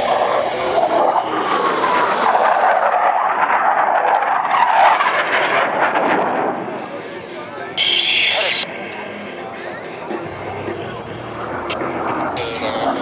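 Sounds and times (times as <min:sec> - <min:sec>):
jets passing with whining tone: 0:00.0 - 0:10.4.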